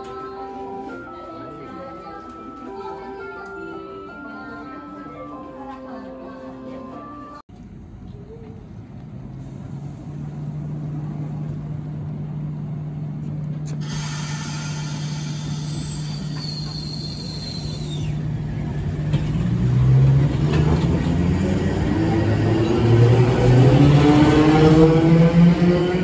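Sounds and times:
electric tram humming: 0:00.0 - 0:26.0
tram pulling away with rising whine: 0:07.7 - 0:26.0
hiss: 0:13.8 - 0:18.1.

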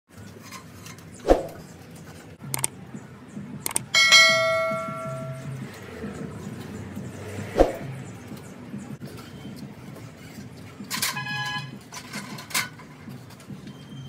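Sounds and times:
short clicks: 0:02.5 - 0:02.7, 0:03.6 - 0:03.9
bright bell ding: 0:04.0 - 0:05.5.

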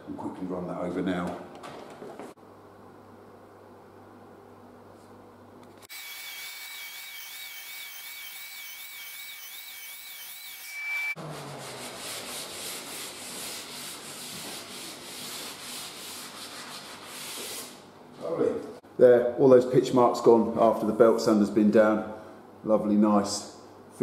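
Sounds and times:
belt sander whining: 0:05.9 - 0:11.2.

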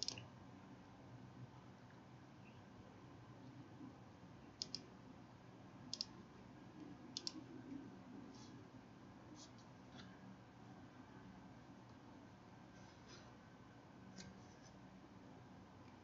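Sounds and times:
computer mouse clicking: 0:00.0 - 0:00.3, 0:04.6 - 0:04.9, 0:05.9 - 0:06.2, 0:07.1 - 0:07.4
faint room hum: 0:00.0 - 0:16.0.

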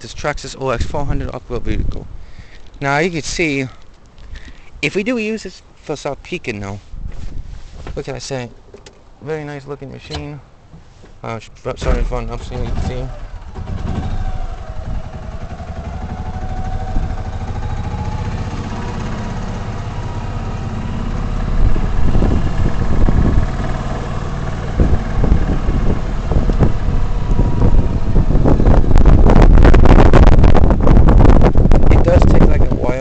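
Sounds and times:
knocks and rattles: 0:11.8 - 0:15.9
vehicle engine running: 0:11.8 - 0:31.8.

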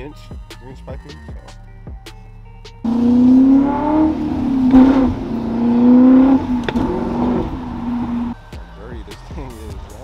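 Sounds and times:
car exhaust accelerating: 0:02.8 - 0:08.4.

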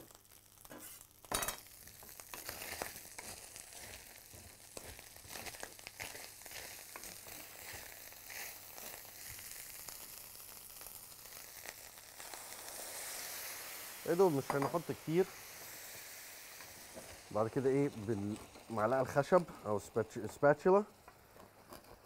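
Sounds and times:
meat sizzling in frying pan: 0:00.0 - 0:22.0.

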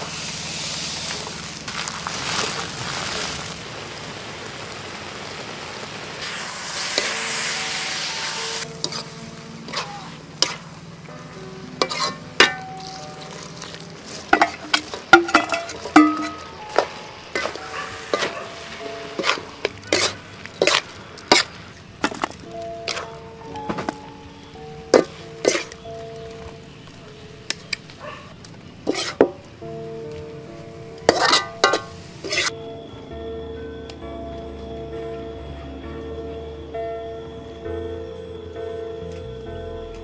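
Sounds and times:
food sizzling in a wok: 0:00.0 - 0:11.1, 0:11.8 - 0:27.5, 0:28.8 - 0:29.5, 0:30.6 - 0:32.6
metal ladle clinking and scraping: 0:08.6 - 0:10.7, 0:11.8 - 0:24.0, 0:24.9 - 0:26.6, 0:28.9 - 0:29.4, 0:31.0 - 0:32.5.

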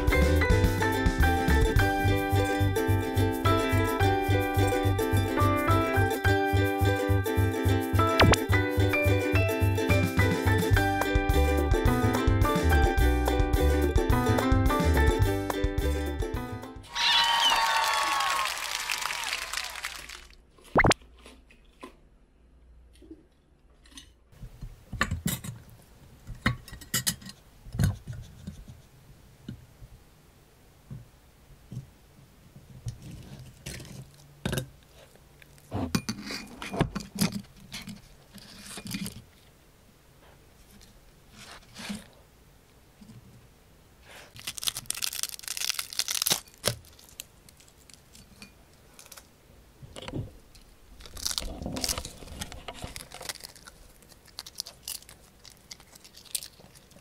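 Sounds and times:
dog crunching dried fish treat: 0:44.3 - 0:48.1, 0:51.0 - 0:57.0.

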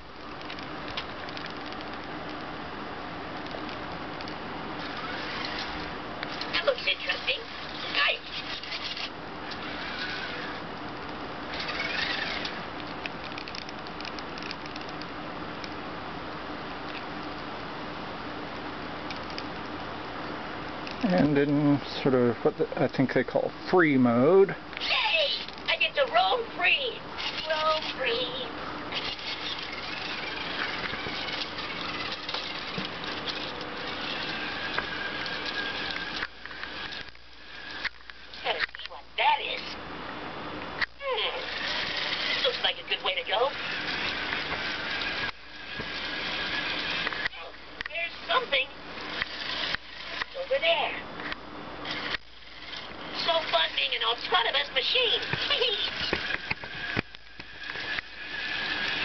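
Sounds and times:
plastic wheels rattling: 0:04.8 - 0:10.6, 0:27.2 - 0:37.8
toy robot motors whirring: 0:04.8 - 0:10.6, 0:11.5 - 0:14.9, 0:24.8 - 0:39.8, 0:41.0 - 0:51.0, 0:51.8 - 0:59.0.

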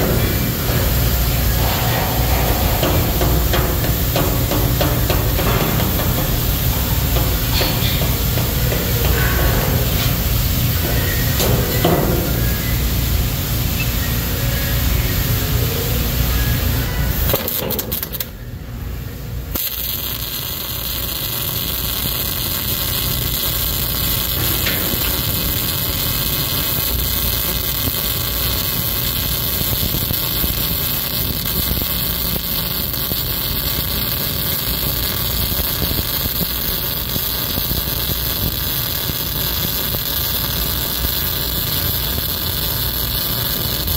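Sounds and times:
low rumble: 0:00.0 - 0:11.8
welding arc hissing: 0:00.0 - 0:18.4, 0:19.4 - 0:43.9.

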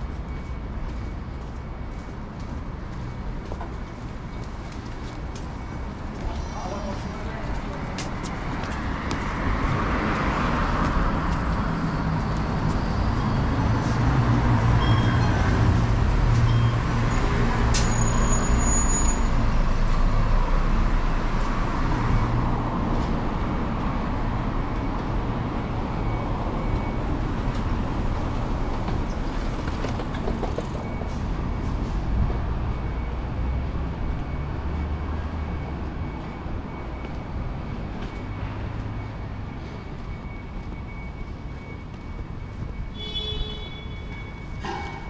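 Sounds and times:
city road traffic: 0:00.0 - 0:45.0
heavy vehicle engine hum: 0:22.7 - 0:41.8.

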